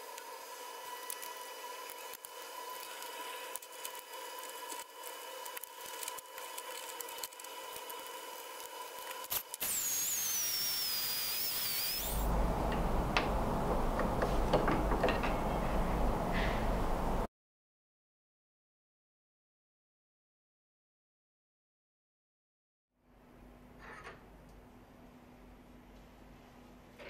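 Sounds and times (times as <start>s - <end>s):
hiss with high whistle: 7.7s - 12.3s
drill press humming: 7.7s - 17.3s
rough noise with clicks and knocks: 11.1s - 16.8s.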